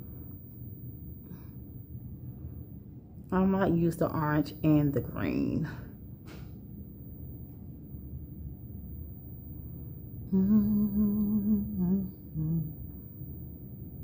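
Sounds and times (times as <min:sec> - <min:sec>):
faint room noise: 0:00.0 - 0:14.0
woman humming: 0:10.3 - 0:13.0.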